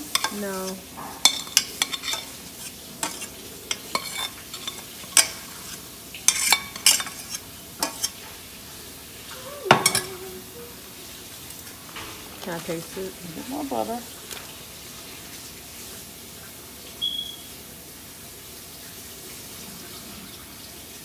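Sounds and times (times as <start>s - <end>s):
metal spoon scraping saucepan: 0.0s - 8.2s, 9.7s - 10.2s.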